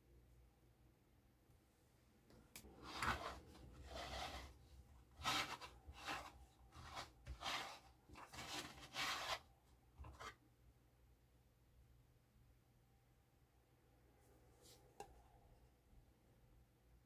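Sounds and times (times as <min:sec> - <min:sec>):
plastic base scraping on tabletop: 0:02.8 - 0:04.5, 0:05.1 - 0:09.4.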